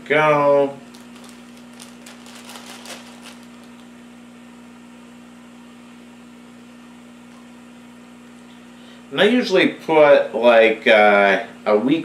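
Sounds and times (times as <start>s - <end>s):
steady low hum: 0.0s - 12.0s
plastic bag crinkling: 0.8s - 4.0s.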